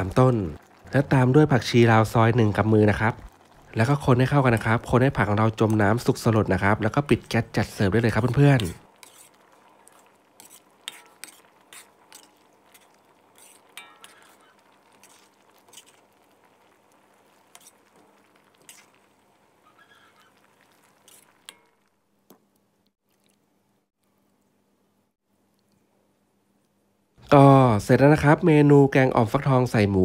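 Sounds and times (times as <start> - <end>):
metal ladle stirring curry in wok: 8.2 - 21.9.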